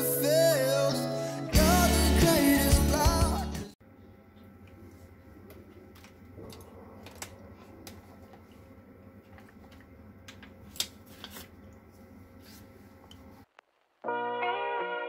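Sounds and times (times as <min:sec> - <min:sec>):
faint hum: 0:03.8 - 0:13.7.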